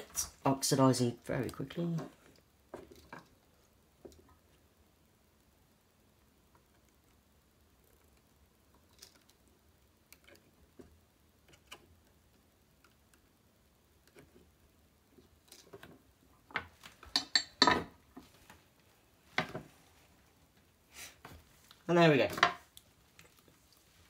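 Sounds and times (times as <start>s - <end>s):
tools clattering on wooden workbench: 16.5s - 18.3s, 22.3s - 22.6s.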